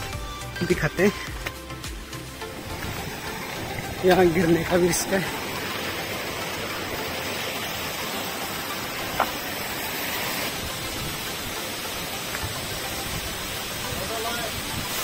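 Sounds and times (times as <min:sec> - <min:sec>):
waterfall rushing: 0:00.7 - 0:15.0.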